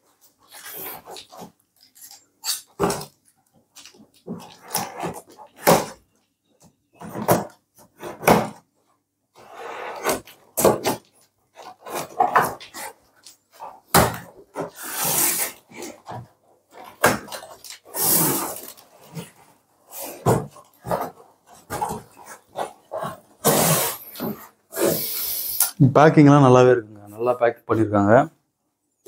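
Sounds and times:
cutter scraping packing tape: 0:14.6 - 0:15.9, 0:17.7 - 0:18.9, 0:23.4 - 0:25.7
tearing rasps: 0:14.6 - 0:16.2, 0:16.8 - 0:25.8.

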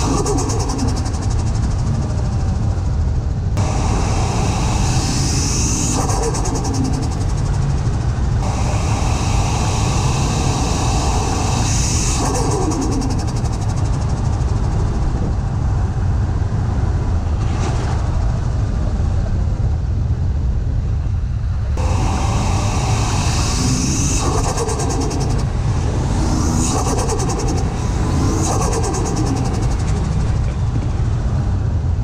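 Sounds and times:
high rising turbo whistle: 0:03.6 - 0:13.7, 0:21.8 - 0:30.2.

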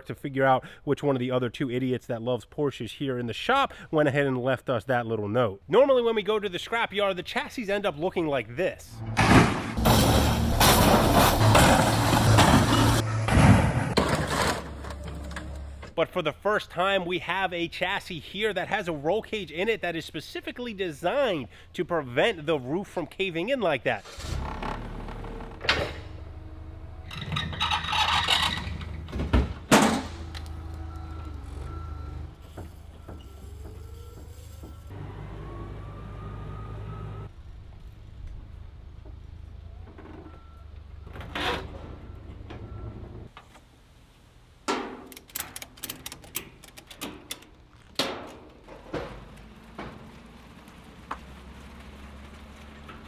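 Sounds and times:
forklift hum: 0:08.9 - 0:16.0, 0:24.1 - 0:43.4
rattling hydraulics: 0:24.0 - 0:35.6.

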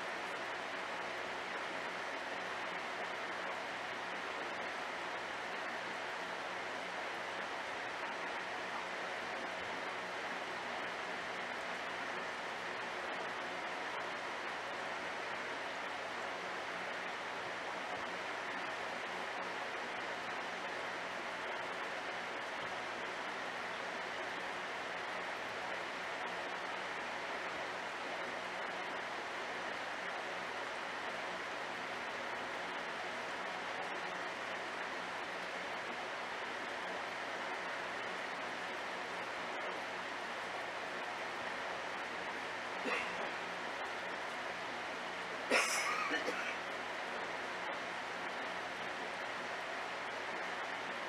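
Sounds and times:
faint low hum: 0:00.0 - 0:51.0.

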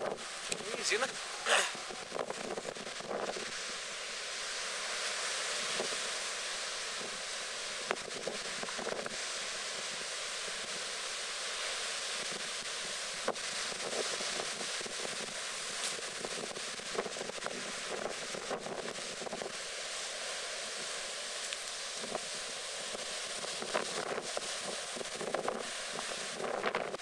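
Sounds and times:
wind buffeting microphone: 0:00.0 - 0:04.6, 0:12.1 - 0:27.0.

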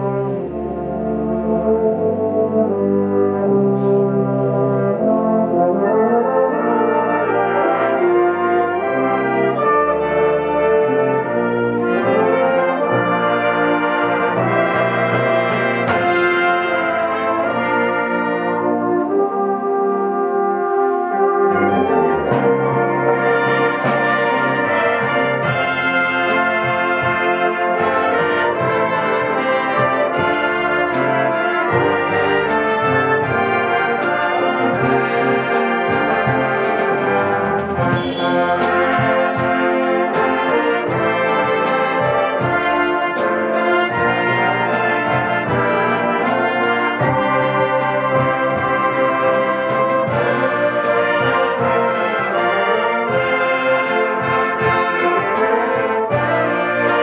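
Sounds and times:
fanfare band playing chords: 0:00.0 - 0:57.0
percussion keeping a beat: 0:14.1 - 0:17.0, 0:22.3 - 0:57.0.

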